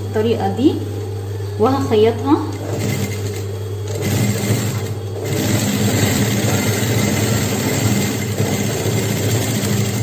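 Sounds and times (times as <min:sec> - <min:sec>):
sewing machine stitching: 0:02.6 - 0:10.0.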